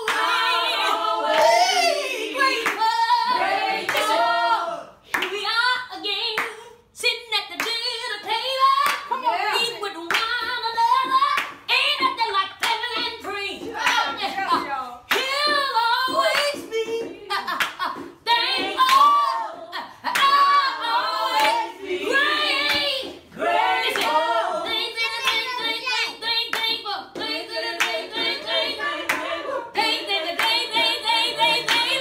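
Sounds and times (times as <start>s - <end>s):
gospel singing: 0.0s - 32.0s
hand clapping: 2.6s - 2.9s, 3.9s - 4.2s, 5.1s - 5.4s, 8.8s - 9.2s, 10.1s - 16.7s, 17.4s - 19.2s, 20.1s - 20.4s, 23.9s - 24.2s, 25.1s - 32.0s.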